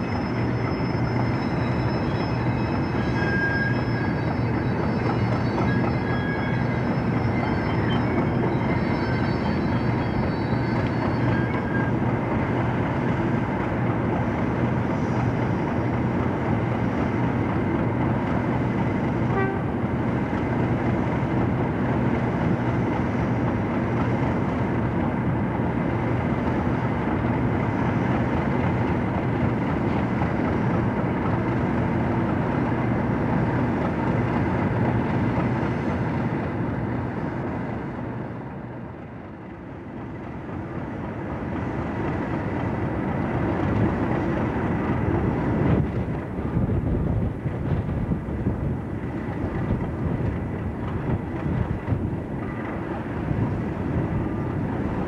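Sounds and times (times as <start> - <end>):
diesel locomotive engine idling: 0.0 - 55.0.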